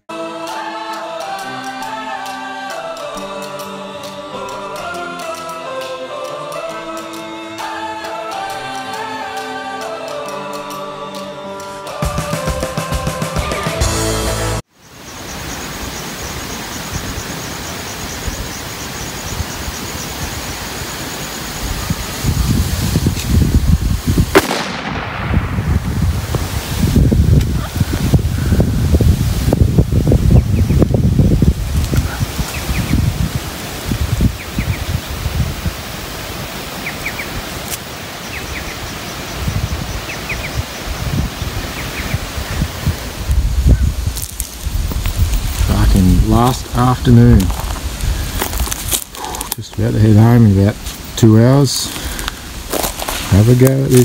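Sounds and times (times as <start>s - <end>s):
steady rushing hiss: 0.0s - 54.0s
wind buffeting microphone: 16.8s - 37.7s, 38.3s - 51.2s.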